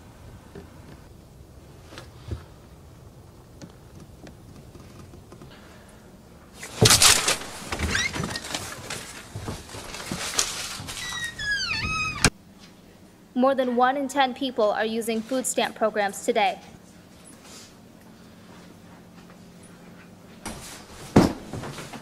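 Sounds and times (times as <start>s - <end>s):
low outdoor background: 0.0s - 20.3s
people stepping inside: 6.6s - 12.4s
front door opening with clatter: 6.7s - 12.3s
door squeak: 7.7s - 8.6s, 11.0s - 12.4s.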